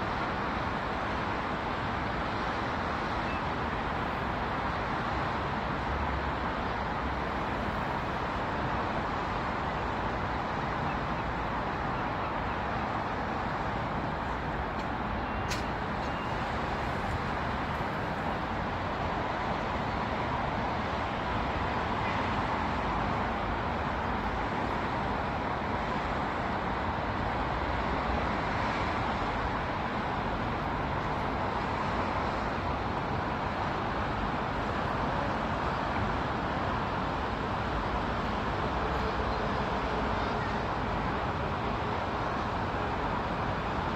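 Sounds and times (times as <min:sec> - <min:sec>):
distant road traffic hum: 0:00.0 - 0:43.9
brief click: 0:15.4 - 0:15.7.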